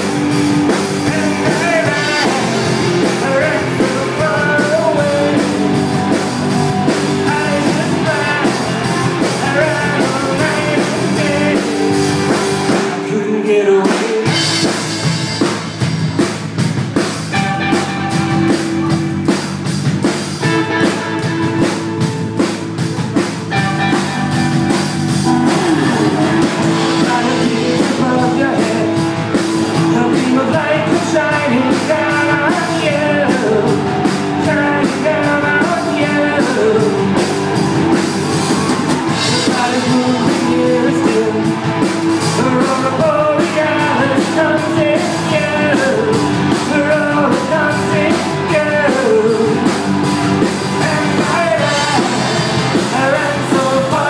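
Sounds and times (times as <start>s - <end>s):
drum kit beat: 0.0s - 54.0s
electric guitars: 0.0s - 54.0s
melodic line: 23.5s - 30.3s.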